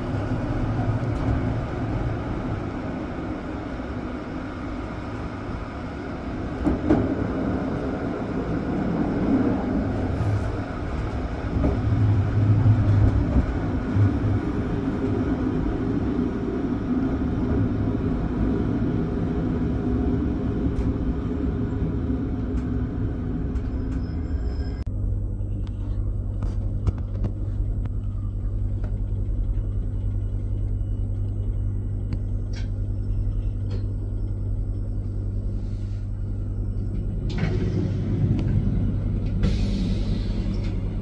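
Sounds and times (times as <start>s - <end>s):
passing train rushing: 0.0s - 24.9s, 36.9s - 41.0s
electric train rumbling: 0.0s - 41.0s
clicks of train: 6.5s - 7.4s, 10.3s - 14.1s, 22.4s - 24.2s, 32.1s - 34.0s, 36.8s - 41.0s.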